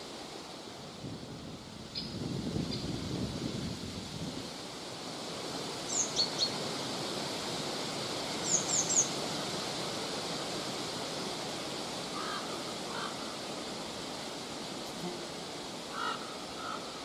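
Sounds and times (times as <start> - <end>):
wind through forest: 0.0 - 17.0
faint lower bird calls: 15.9 - 17.0.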